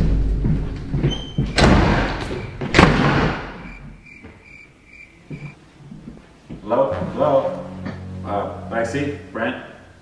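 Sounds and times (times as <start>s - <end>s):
heavy door slams: 1.4s - 3.8s.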